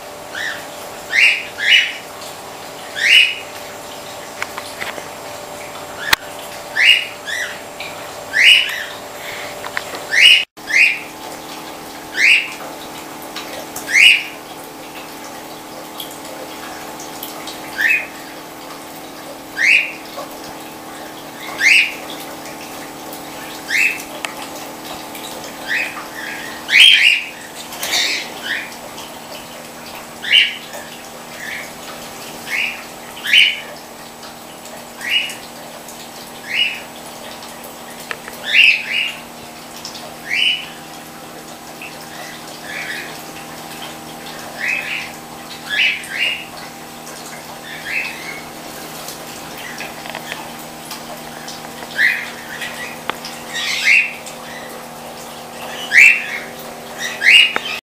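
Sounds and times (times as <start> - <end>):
water pumps humming: 0.0 - 57.8
birds squawking: 0.3 - 2.2, 2.8 - 3.6, 5.9 - 11.1, 12.1 - 12.6, 13.8 - 14.5, 17.6 - 18.4, 19.5 - 20.2, 21.0 - 22.2, 23.4 - 24.1, 25.4 - 33.8, 36.4 - 37.0, 38.3 - 39.4, 40.1 - 41.1, 41.7 - 43.3, 44.2 - 46.6, 47.2 - 48.7, 49.4 - 57.8.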